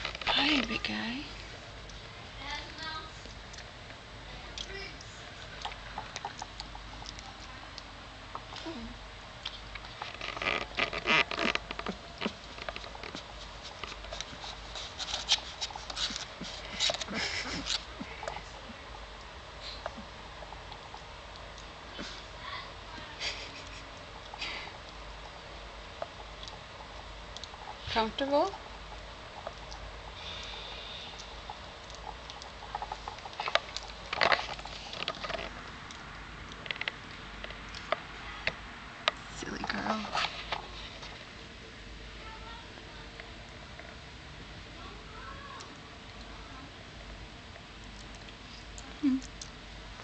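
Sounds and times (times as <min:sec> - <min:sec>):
soft rustling: 0:39.3 - 0:41.4.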